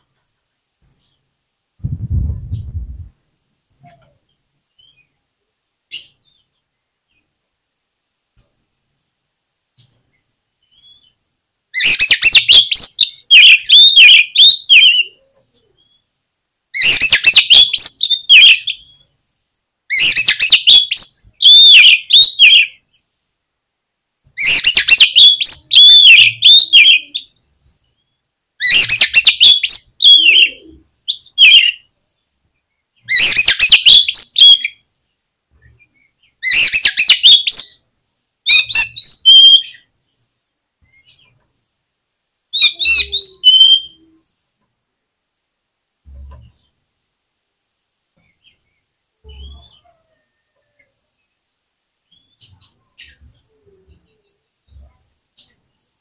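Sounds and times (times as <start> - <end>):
songbird whistling and chattering: 11.8 - 15.8, 16.8 - 19.0, 19.9 - 22.7, 24.4 - 27.4, 28.6 - 31.9, 33.1 - 34.8, 36.4 - 37.8, 38.5 - 39.8, 42.6 - 44.1.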